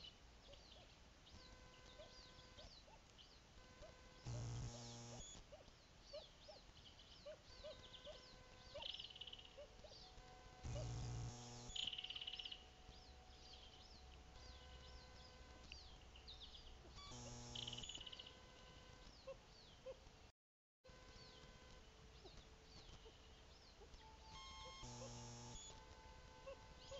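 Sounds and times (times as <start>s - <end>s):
chorus of high chirps: 0.0s - 20.0s, 21.0s - 26.9s
electrical buzz: 3.6s - 5.4s, 9.5s - 19.2s, 24.1s - 26.9s
short trills: 24.0s - 26.9s.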